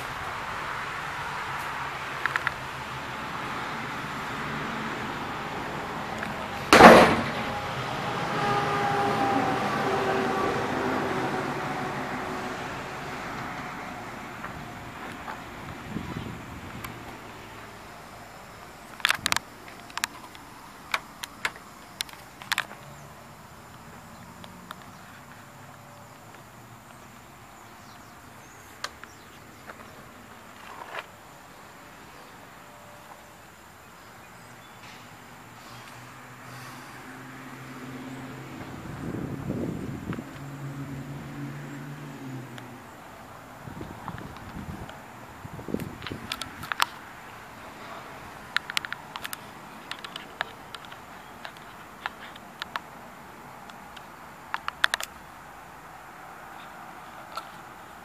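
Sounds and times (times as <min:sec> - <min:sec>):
sudden bang: 0:06.7 - 0:07.7
sharp clicks: 0:18.9 - 0:22.9, 0:48.5 - 0:52.9, 0:53.6 - 0:55.3.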